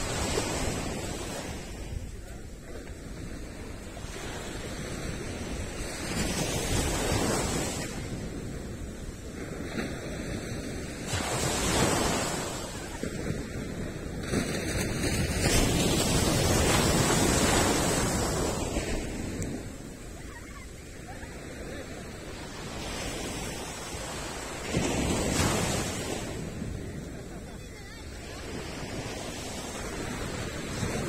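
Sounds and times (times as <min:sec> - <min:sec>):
ocean waves breaking on beach: 0:00.0 - 0:31.0.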